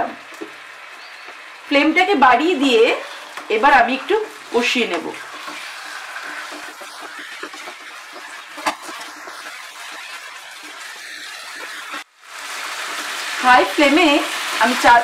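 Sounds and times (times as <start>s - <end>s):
food sizzling in hot oil: 0.0s - 15.0s
wooden spatula stirring: 3.0s - 12.1s.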